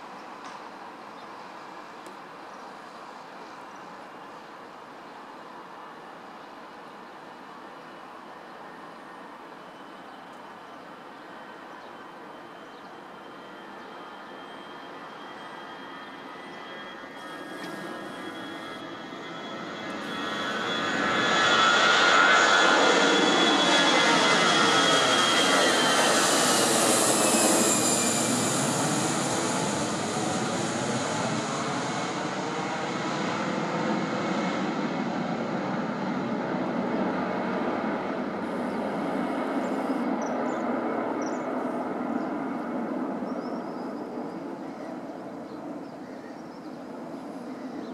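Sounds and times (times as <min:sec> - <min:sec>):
jet engines at takeoff: 0:00.1 - 0:47.9.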